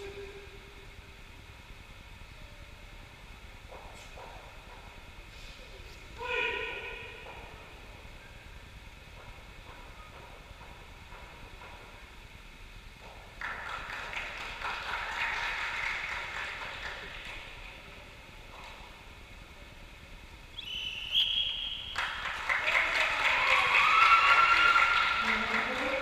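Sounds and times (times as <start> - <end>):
crowd cheering: 13.4 - 17.6, 21.6 - 26.0
applause: 13.4 - 18.0, 21.9 - 26.0
referee whistle blast: 20.6 - 22.0.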